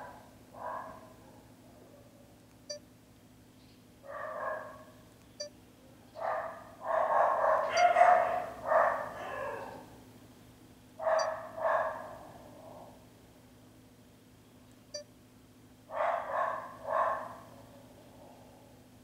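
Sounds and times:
dog barking: 0.0s - 2.2s, 4.0s - 5.0s, 6.2s - 9.9s, 11.0s - 13.0s, 15.9s - 18.8s.

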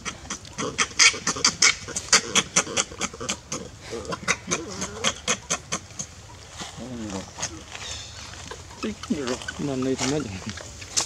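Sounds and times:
lower wavering monkey calls: 0.0s - 10.4s
baby monkey squealing: 0.6s - 6.1s.

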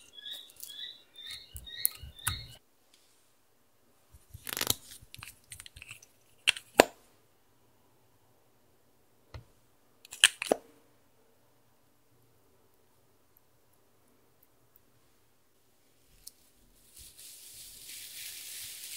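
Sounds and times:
sharp plastic clicks: 0.6s - 2.6s.

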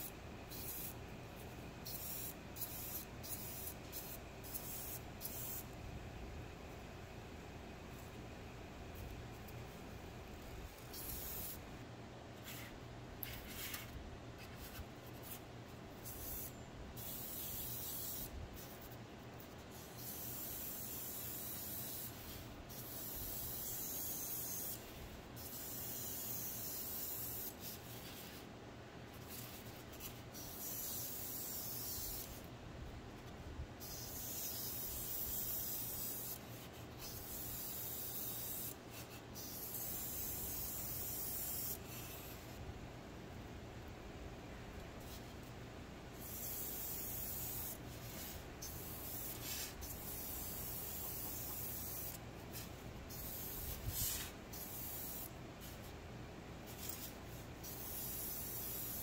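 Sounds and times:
airbrush spraying hiss: 0.0s - 1.0s, 1.8s - 5.7s, 10.7s - 11.6s, 16.0s - 18.9s, 19.7s - 28.4s, 29.2s - 32.5s, 33.8s - 42.6s, 46.2s - 55.9s, 56.7s - 59.0s.

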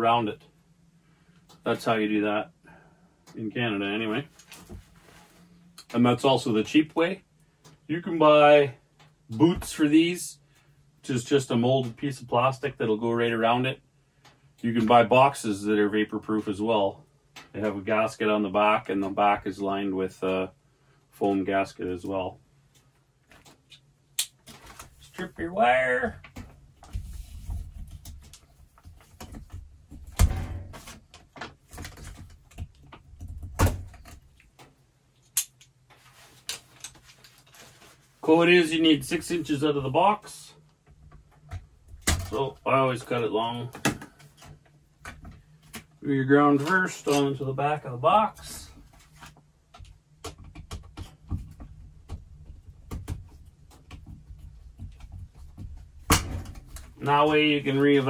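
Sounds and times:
cable rustling and clicking: 4.3s - 6.1s, 22.0s - 38.2s.

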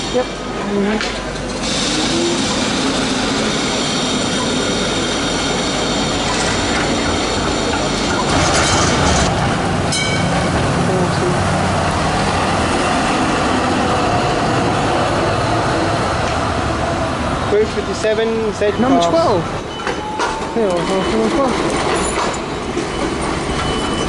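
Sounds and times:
electric tram whining: 0.0s - 24.0s
tram passing rumble: 0.0s - 24.0s
wheels rolling on rail: 0.1s - 24.0s
sharp tram bell ring: 9.9s - 10.5s.

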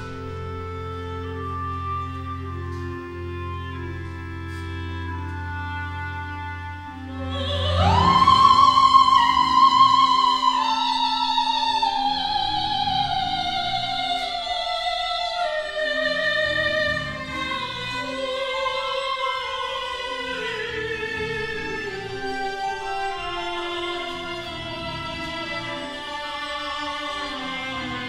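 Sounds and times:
woman singing operatically: 7.2s - 24.6s.

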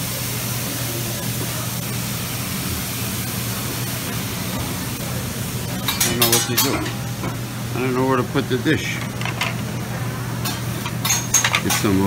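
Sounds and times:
tableware clattering: 5.8s - 7.4s, 9.0s - 9.7s, 10.4s - 12.0s.

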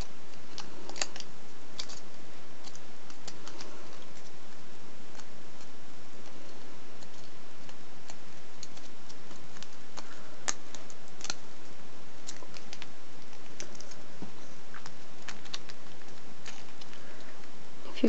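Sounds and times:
foil wrapper crinkling: 0.0s - 17.5s.

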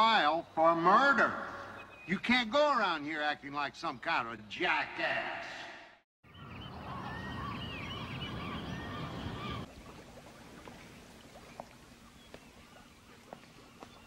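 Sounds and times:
waterfowl calling: 6.3s - 14.0s.

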